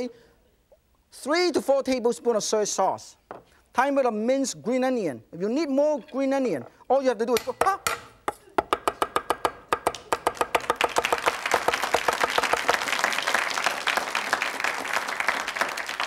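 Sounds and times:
cleaver chopping on wooden board: 7.4s - 11.1s
audience applause: 10.3s - 16.0s.

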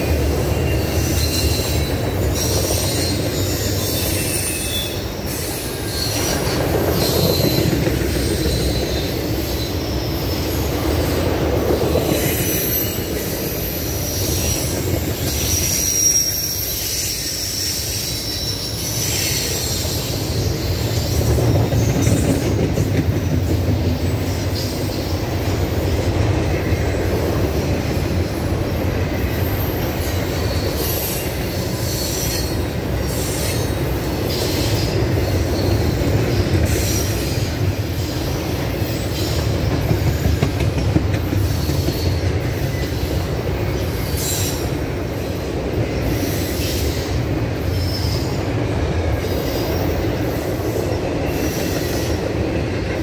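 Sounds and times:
train wheels rumbling on rails: 0.0s - 53.0s
high-pitched wheel squeals: 0.4s - 10.6s, 12.1s - 21.2s.

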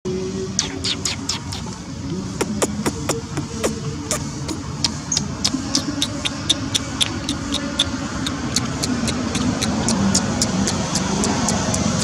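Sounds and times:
regular ticking clicks: 4.8s - 12.0s.

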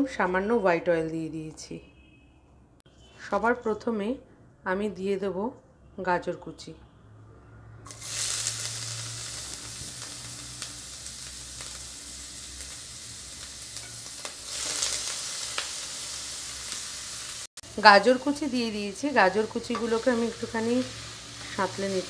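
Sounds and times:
carrots sizzling in hot oil: 7.9s - 22.0s.

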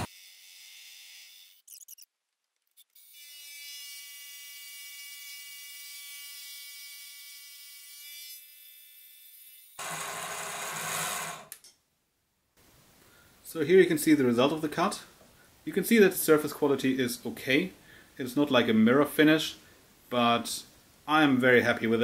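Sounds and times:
rough metal cutting noise: 0.0s - 2.1s, 9.8s - 11.6s.

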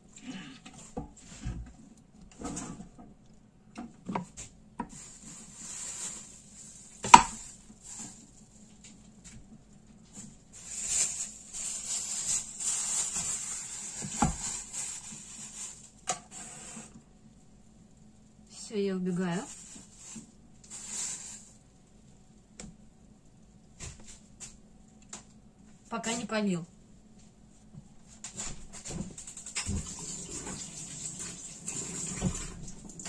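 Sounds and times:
plastic bag crinkling: 4.9s - 8.8s, 10.5s - 16.0s, 19.3s - 21.6s.

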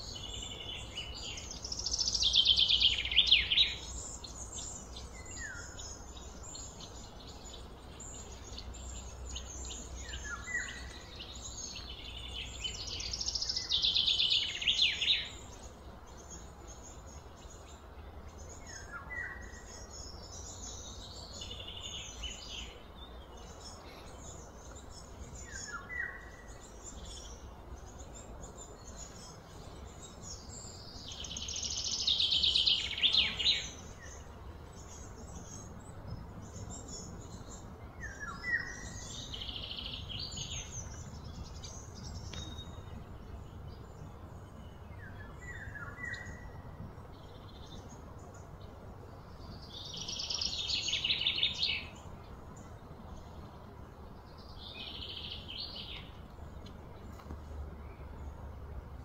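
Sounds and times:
birds chirping and calling: 0.0s - 58.5s
low steady background hum: 0.0s - 59.0s.

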